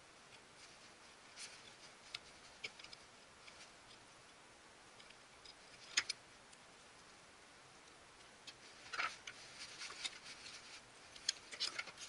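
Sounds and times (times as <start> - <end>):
small clicks of handling metal parts: 1.4 - 4.0, 4.9 - 7.1, 7.8 - 12.0.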